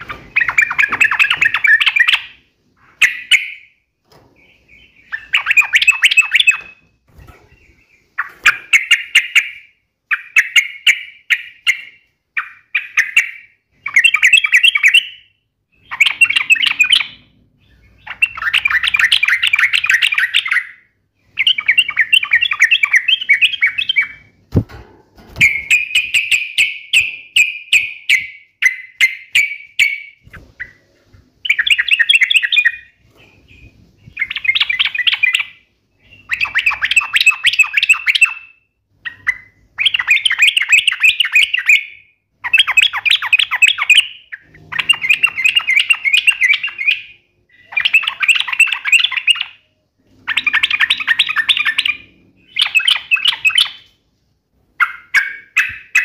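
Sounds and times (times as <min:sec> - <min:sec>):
bird chattering song: 0:00.0 - 0:03.8, 0:04.4 - 0:24.4, 0:25.4 - 0:54.0, 0:54.8 - 0:56.0.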